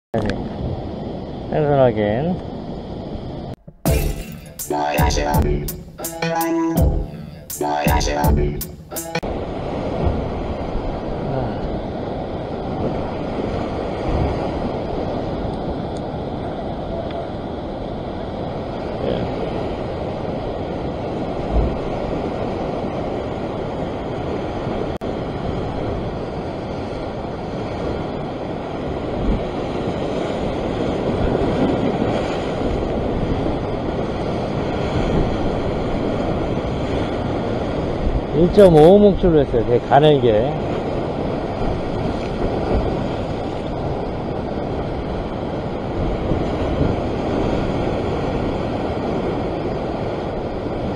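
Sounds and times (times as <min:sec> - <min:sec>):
wind buffeting microphone: 0:40.7 - 0:50.9.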